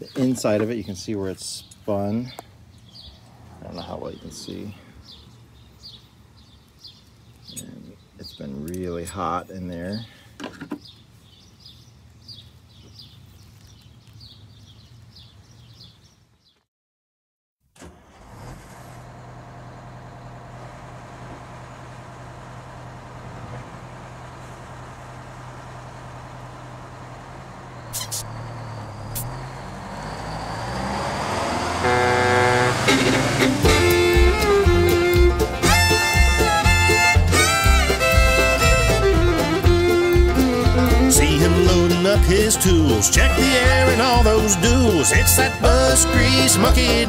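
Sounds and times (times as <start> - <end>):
bus diesel engine idling: 18.2 - 47.0
faint bird chirps: 27.8 - 30.5.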